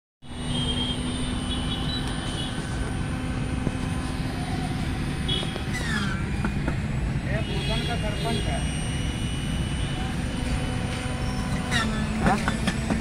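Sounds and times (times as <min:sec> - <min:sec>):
low traffic rumble: 0:00.2 - 0:13.0.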